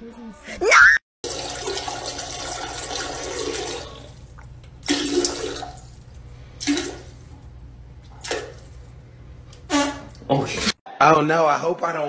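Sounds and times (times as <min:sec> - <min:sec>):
dog urinating into toilet water: 0:01.2 - 0:07.4, 0:08.0 - 0:08.9.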